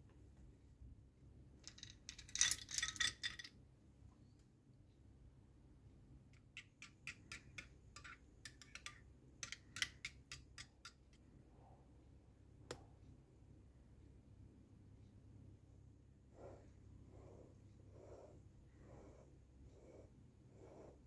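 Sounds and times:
coins clattering into ceramic bowl: 1.7 - 3.5
metal spoon clinking bowl: 6.5 - 11.2.

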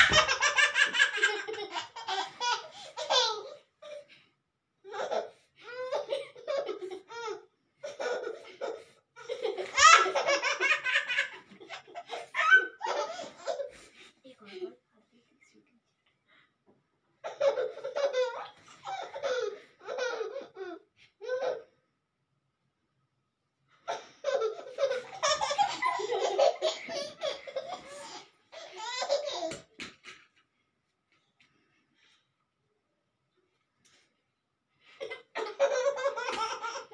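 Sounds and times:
hearty laughter: 24.5 - 29.4.

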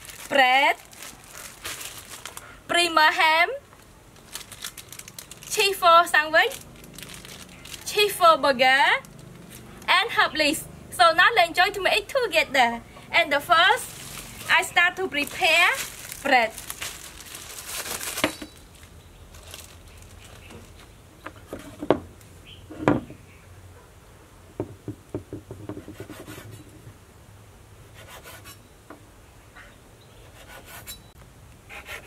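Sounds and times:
knife knocking on wooden board: 24.6 - 26.0.

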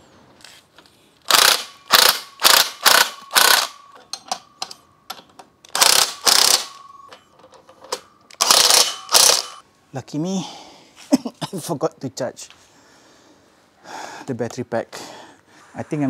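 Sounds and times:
ratchet clicking: 1.2 - 4.8, 5.7 - 6.8, 8.3 - 9.6.

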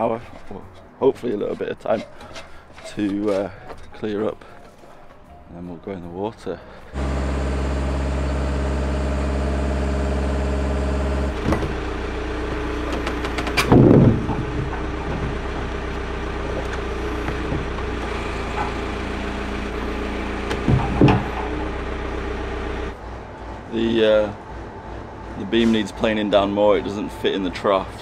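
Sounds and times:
large engine running: 6.9 - 28.0.

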